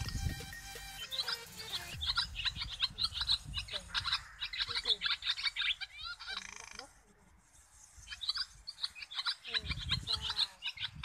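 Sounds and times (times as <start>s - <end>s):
swallows twittering: 0.0s - 11.0s.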